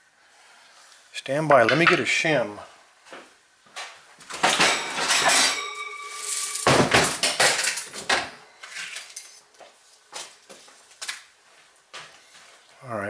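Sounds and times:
small metal tools clinking: 4.4 - 9.4
ringing tone from struck metal: 4.5 - 9.4.

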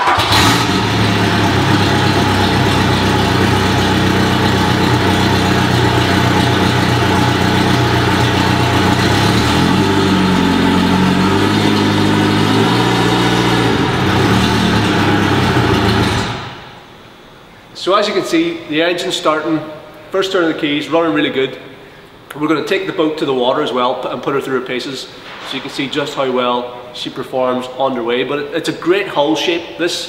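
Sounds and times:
outboard motor idling: 0.1 - 16.6.

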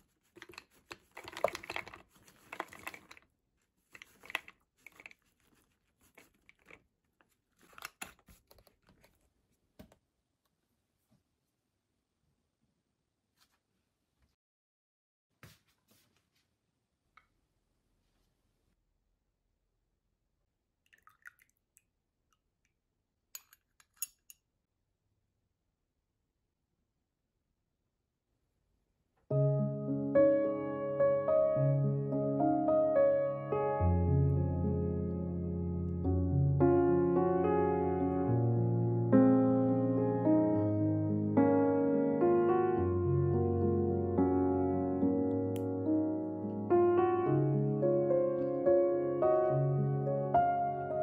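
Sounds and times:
plastic bag crinkling: 0.0 - 9.3
metal lid screwed on: 0.4 - 3.2, 4.0 - 5.2
nuts dropping into a jar: 0.4 - 3.2.

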